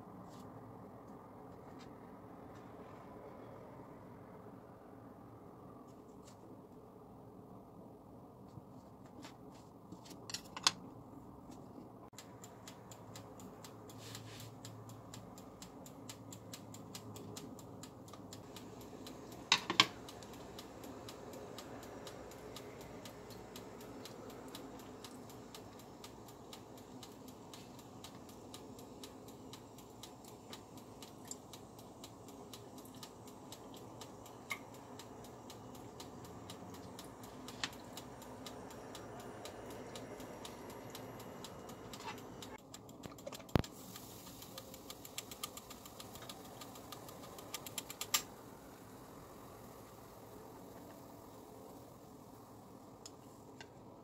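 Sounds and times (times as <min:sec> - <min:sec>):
faint room hum: 0:00.0 - 0:54.0
kitchen clicks and clacks: 0:19.2 - 0:20.6, 0:39.2 - 0:48.3.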